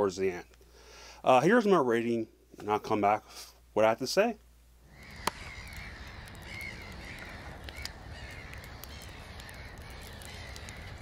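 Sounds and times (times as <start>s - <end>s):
fire crackling: 4.8s - 11.0s
crows cawing: 4.9s - 11.0s
sharp crack: 4.9s - 11.0s.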